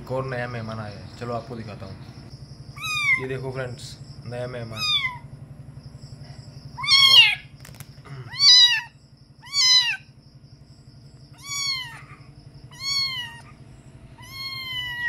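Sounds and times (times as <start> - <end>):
kitten meowing: 2.8 - 3.3, 4.7 - 5.2, 6.8 - 7.5, 8.3 - 10.1, 11.3 - 13.6, 14.2 - 15.0.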